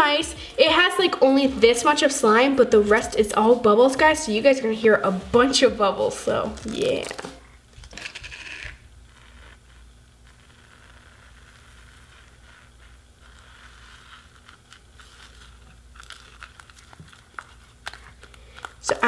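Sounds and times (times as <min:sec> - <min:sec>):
foamy slime crackling and popping: 0:06.1 - 0:19.0.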